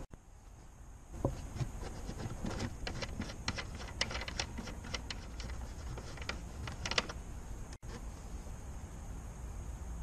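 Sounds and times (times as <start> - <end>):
plastic nut clicking: 2.4 - 7.2.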